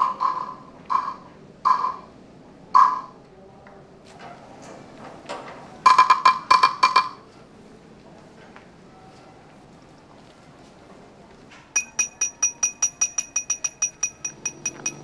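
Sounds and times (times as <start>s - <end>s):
ringing knocks on hard object: 11.8s - 15.0s.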